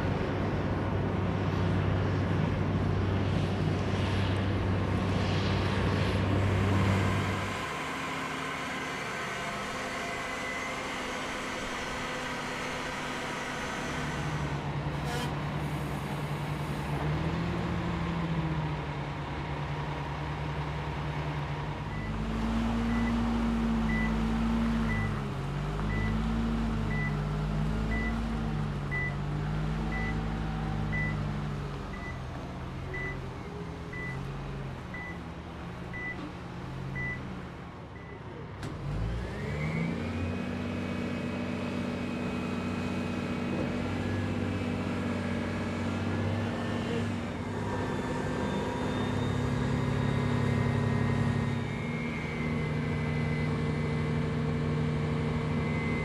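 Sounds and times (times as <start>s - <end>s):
reversing alarm beeps: 32.9s - 33.2s
heavy vehicle engine revving: 38.7s - 56.0s.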